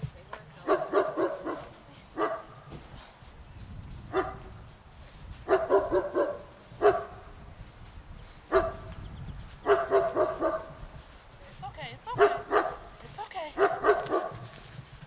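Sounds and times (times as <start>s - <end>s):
dog barking: 0.6s - 2.6s, 4.1s - 4.5s, 5.5s - 7.3s, 8.5s - 8.9s, 9.6s - 10.8s, 12.2s - 12.9s, 13.6s - 14.4s.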